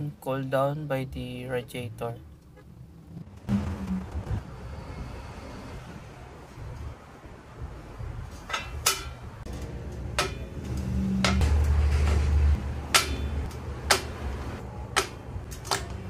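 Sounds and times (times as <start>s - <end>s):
low rumble: 2.2s - 8.3s.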